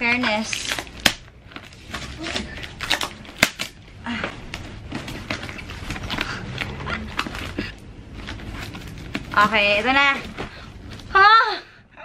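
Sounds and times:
tape and cardboard tearing: 0:00.0 - 0:03.8, 0:04.5 - 0:10.3.

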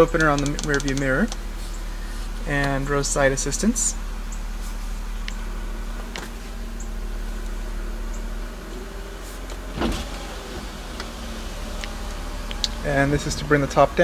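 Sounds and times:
car cabin hum: 0:00.0 - 0:14.0
dull thump: 0:09.6 - 0:13.1.

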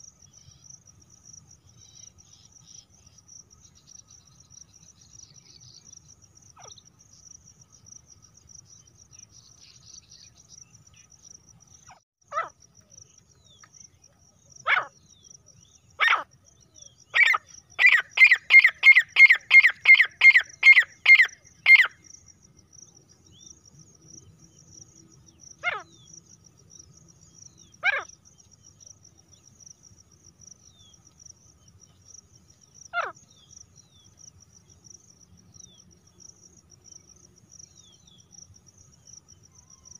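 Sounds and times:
crickets trilling: 0:00.0 - 0:39.9
francolin calling: 0:14.6 - 0:22.2.

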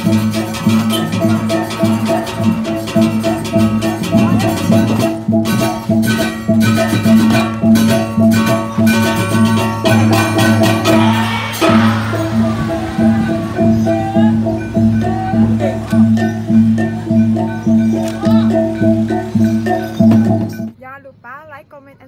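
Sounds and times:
gamelan music: 0:00.0 - 0:20.7
sustained ringing tones: 0:00.2 - 0:20.7
sharp metallic cymbal strokes: 0:08.9 - 0:20.1.

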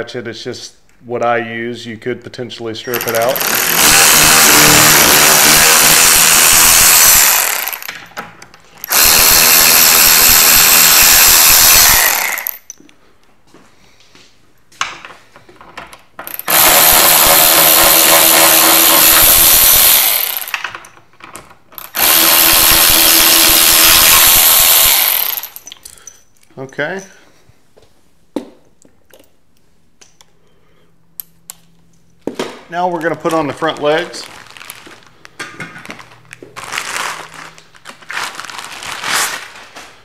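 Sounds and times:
electric ratchet running: 0:02.9 - 0:08.0, 0:08.8 - 0:12.6, 0:16.3 - 0:20.6, 0:21.8 - 0:25.7.

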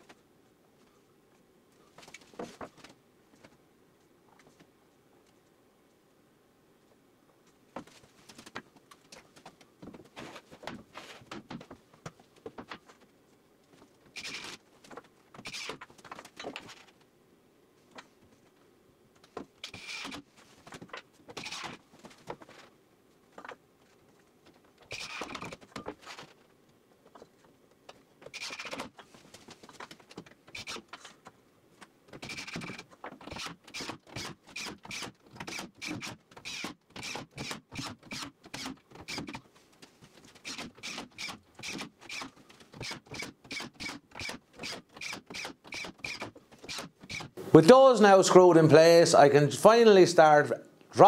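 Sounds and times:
cordless drill driving screws: 0:32.2 - 0:39.3, 0:40.4 - 0:47.3.

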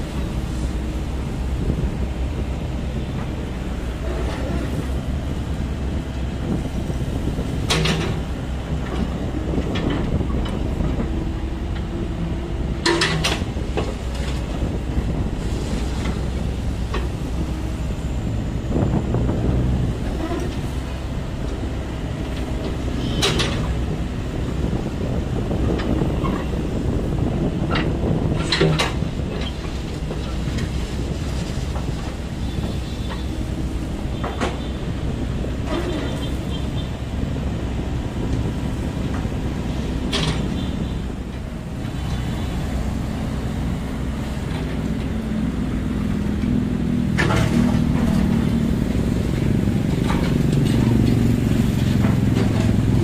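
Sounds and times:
excavator diesel engine running: 0:00.0 - 0:53.0
metallic clanks of excavator bucket: 0:12.8 - 0:13.5.

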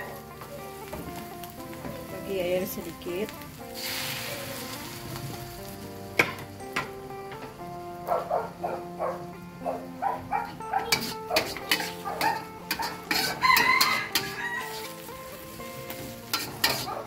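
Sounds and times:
background music: 0:00.0 - 0:17.0
metal spatula scraping wok: 0:10.8 - 0:17.0
rooster crowing: 0:12.2 - 0:15.0.

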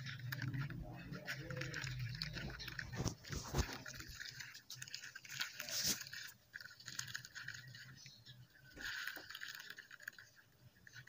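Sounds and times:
wet dirt crumbling and squishing: 0:00.2 - 0:06.1
small water splashes: 0:01.2 - 0:11.0.

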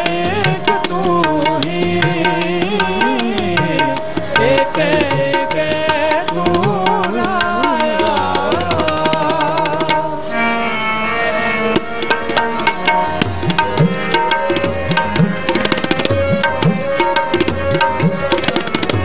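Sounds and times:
man singing: 0:00.0 - 0:10.3
harmonium chords: 0:00.0 - 0:19.0
tabla rhythm: 0:00.0 - 0:19.0.

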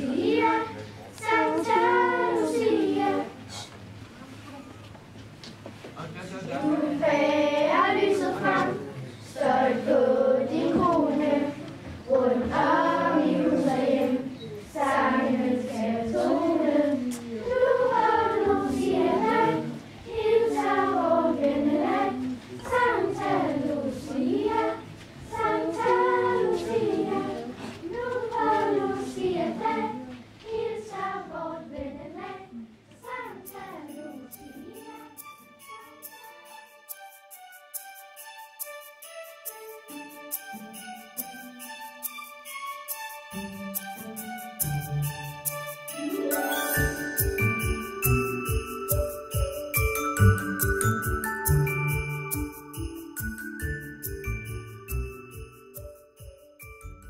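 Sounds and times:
girls choir singing unaccompanied: 0:00.0 - 0:03.6, 0:06.5 - 0:36.0.

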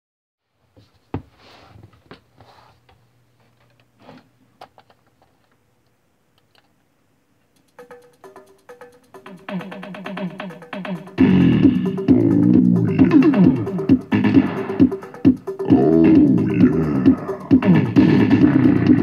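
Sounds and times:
soft rustling: 0:00.5 - 0:04.4
background music: 0:07.6 - 0:19.0.

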